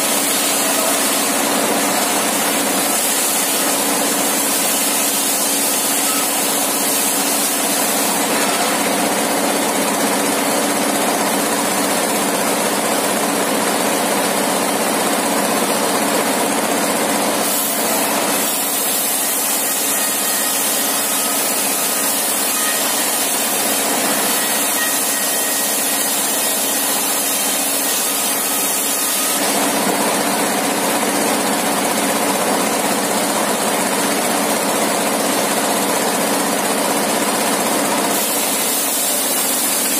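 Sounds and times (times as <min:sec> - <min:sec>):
circular saw cutting wood: 0:00.0 - 0:10.7, 0:17.4 - 0:30.7, 0:38.1 - 0:39.9.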